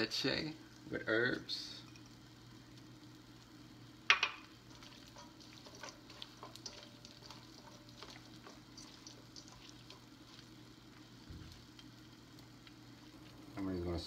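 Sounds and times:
utensil stirring in a metal bowl: 4.6s - 13.6s.

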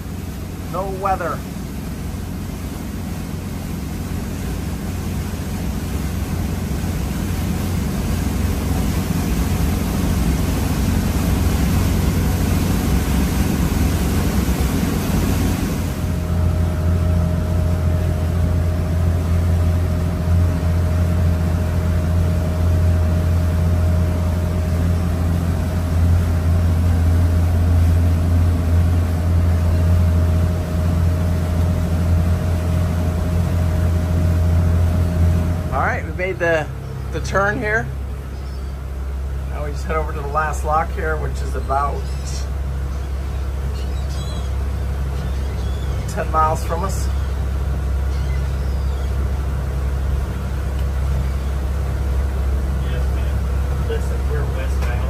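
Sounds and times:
wind and water hiss: 0.0s - 43.8s
boat diesel engines droning: 0.0s - 55.0s
steady whine: 0.0s - 55.0s.

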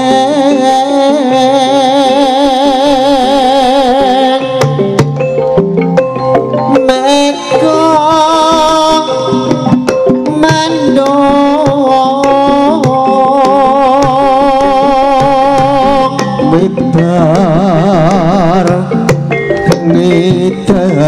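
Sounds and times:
drum strokes and percussion: 3.0s - 21.0s.

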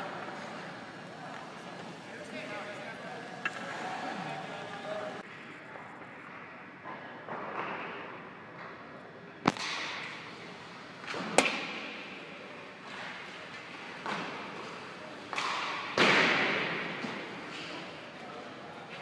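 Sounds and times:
sharp cracks of hockey sticks: 9.4s - 10.2s, 11.0s - 11.9s, 15.3s - 17.8s
pucks hitting boards: 9.5s - 10.2s, 11.0s - 12.0s, 12.9s - 17.9s.

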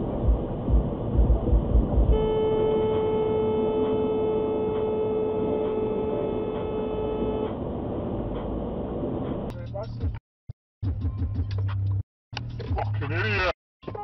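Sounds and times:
low thumps: 0.0s - 2.3s
car horn long honk: 2.1s - 7.8s.

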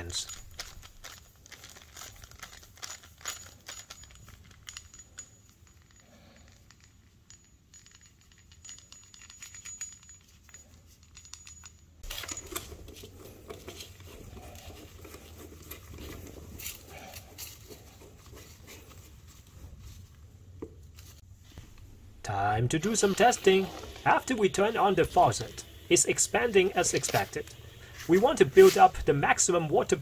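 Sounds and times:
handling sounds: 0.0s - 30.0s
screwdriver clicks and rattles: 0.1s - 18.5s.

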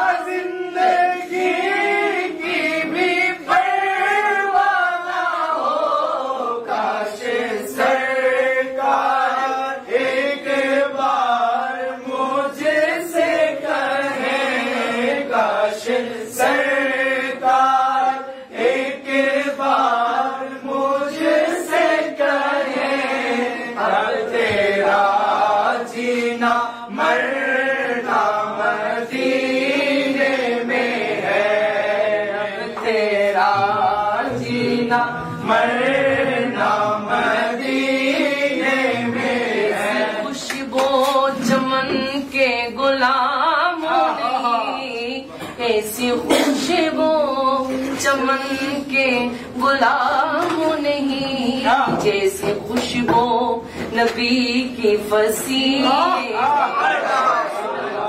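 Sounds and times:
men chanting in chorus: 0.0s - 42.2s.

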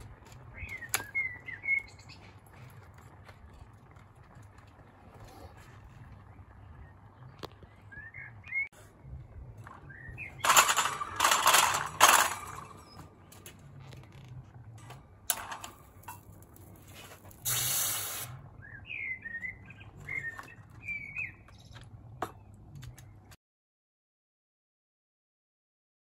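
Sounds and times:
small birds chirping: 0.0s - 10.6s, 18.2s - 23.4s
metal tools clattering on grill: 10.4s - 13.1s, 14.8s - 17.6s
short hiss: 17.4s - 18.3s.

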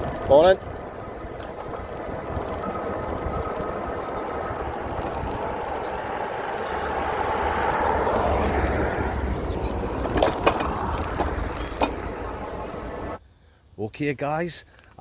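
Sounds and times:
sharp clicks or rattles: 0.0s - 9.1s, 9.8s - 12.6s
wind rumble: 0.0s - 13.2s
road noise: 0.0s - 13.3s.

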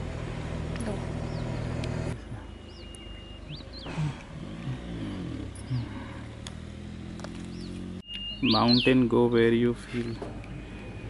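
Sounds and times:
low engine hum: 0.0s - 11.0s
short bird chirps: 7.5s - 9.0s.

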